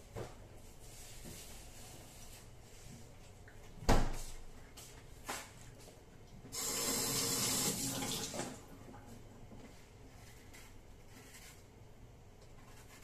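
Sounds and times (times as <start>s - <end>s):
water running from a tap: 6.6s - 8.6s.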